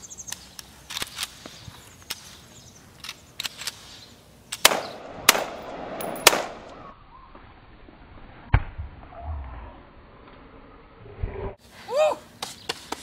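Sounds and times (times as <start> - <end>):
loud gunshots with echo: 4.6 - 6.7.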